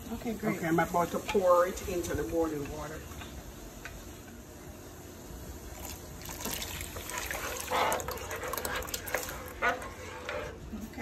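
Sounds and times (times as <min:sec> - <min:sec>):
water boiling in a pot: 0:00.0 - 0:11.0
slurry poured splashing: 0:05.7 - 0:09.6.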